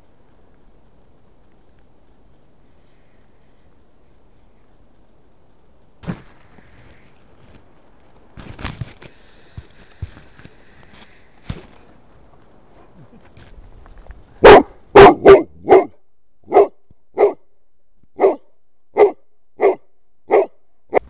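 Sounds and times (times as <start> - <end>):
dog barking: 14.4 - 17.4, 18.2 - 21.0.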